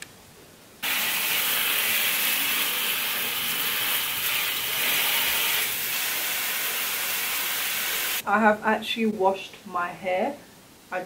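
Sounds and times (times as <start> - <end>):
shower spraying into bathtub: 0.8 - 8.2.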